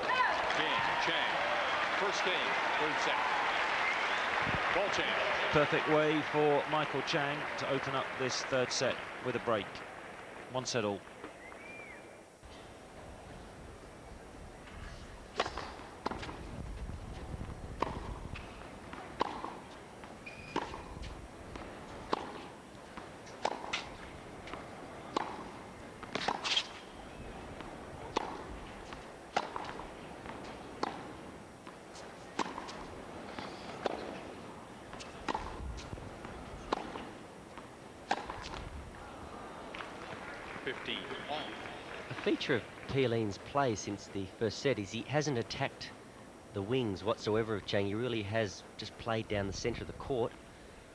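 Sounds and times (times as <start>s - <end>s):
rackets hitting tennis balls: 15.3s - 16.6s, 17.2s - 41.6s
balls bouncing on hard court: 17.8s - 19.6s, 20.5s - 22.4s, 27.5s - 34.2s, 34.9s - 38.7s.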